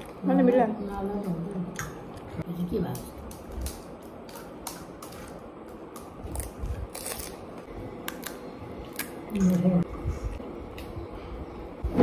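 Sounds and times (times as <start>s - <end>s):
fried shells crackling and crunching: 3.0s - 9.6s.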